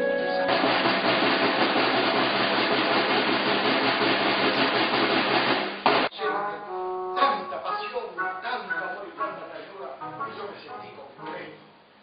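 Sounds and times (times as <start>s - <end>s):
snare drum roll: 0.4s - 6.1s.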